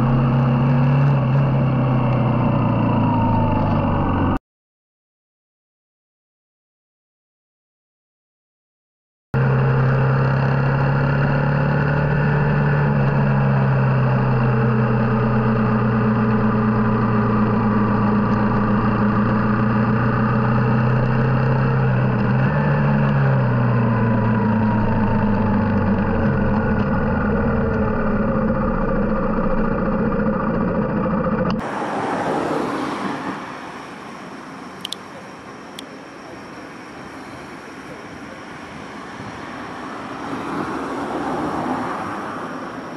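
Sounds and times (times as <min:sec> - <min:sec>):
street ambience: 0:00.0 - 0:04.4, 0:09.4 - 0:42.9
motorcycle engine running: 0:09.4 - 0:32.2
sharp clicks: 0:34.8 - 0:35.1.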